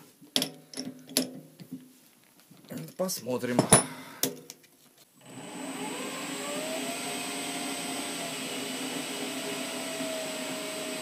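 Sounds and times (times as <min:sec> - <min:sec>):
metal lathe motor whine: 0:05.2 - 0:11.0.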